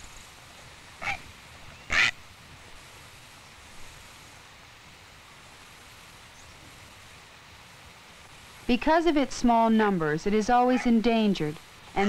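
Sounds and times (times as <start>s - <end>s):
soundtrack hiss: 0.0s - 12.0s
heron squawking: 1.0s - 1.2s, 1.9s - 2.2s, 10.4s - 11.1s.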